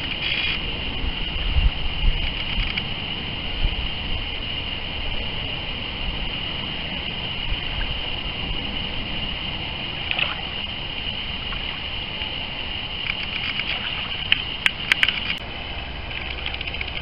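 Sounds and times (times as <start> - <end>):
high-pitched hiss: 0.0 - 17.0
low wind rumble: 0.0 - 17.0
sharp clicks: 2.2 - 2.9, 13.0 - 15.4, 16.1 - 17.0
waves lapping: 2.2 - 17.0.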